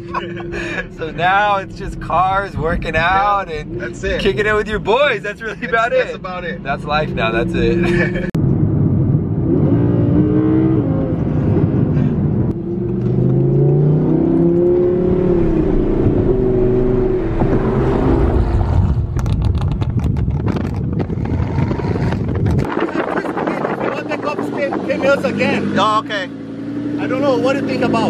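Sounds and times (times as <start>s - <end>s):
sports car engine accelerating: 6.7s - 22.8s, 24.1s - 28.0s.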